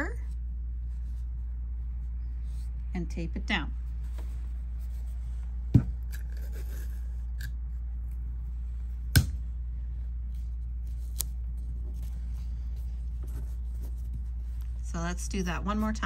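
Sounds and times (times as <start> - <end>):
low hum: 0.0 - 16.0
tape and fabric rustling: 10.2 - 16.0.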